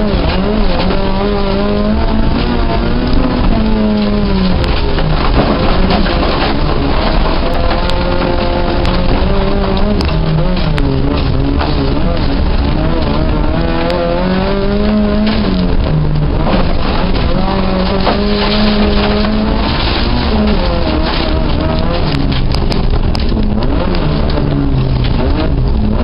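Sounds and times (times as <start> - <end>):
car engine revving: 0.0 - 26.0
tyres sliding on dirt: 0.0 - 26.0.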